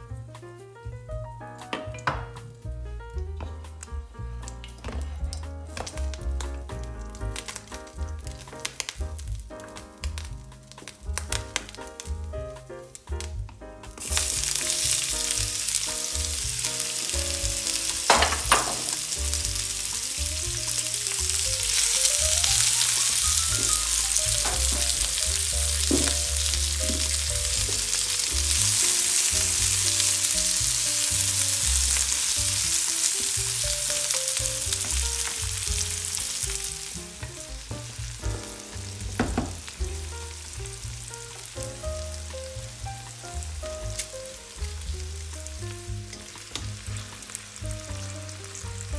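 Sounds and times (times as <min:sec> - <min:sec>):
onion sizzling in hot oil: 0:04.8 - 0:48.9
sharp knocks: 0:25.8 - 0:27.8, 0:39.0 - 0:39.7.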